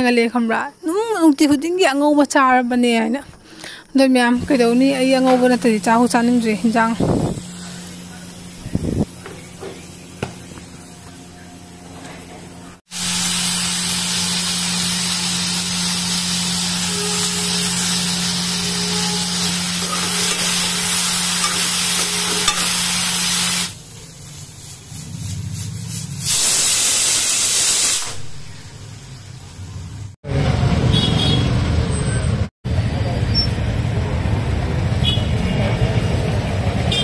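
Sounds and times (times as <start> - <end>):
eggplant sizzling in a pan: 4.4 - 9.1, 12.9 - 29.8
pressure cooker steam hissing: 4.4 - 11.0, 12.9 - 29.2.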